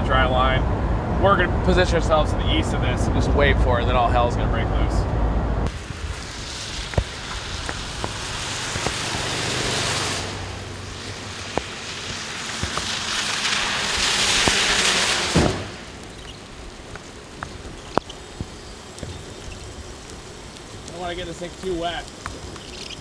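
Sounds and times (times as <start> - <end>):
tyres hissing on wet road: 5.7 - 23.0
raindrops ticking: 15.9 - 23.0.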